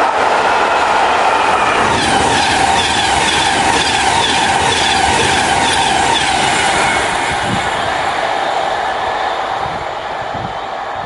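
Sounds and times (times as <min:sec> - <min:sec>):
train wheels rumbling on rail: 0:00.0 - 0:11.0
clickety-clack over rail joints: 0:01.8 - 0:07.6.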